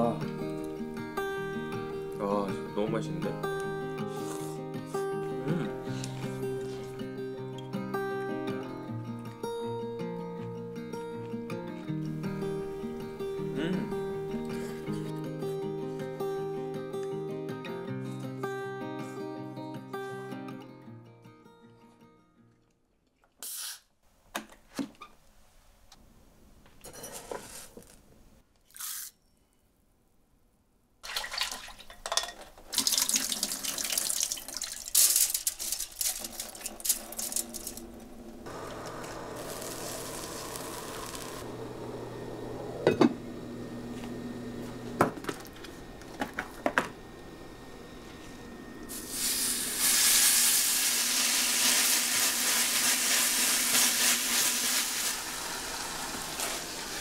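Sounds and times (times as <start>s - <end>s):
tap water running into sink: 32.7s - 35.4s
meat sizzling in a hot pan: 38.5s - 41.5s, 48.9s - 57.0s.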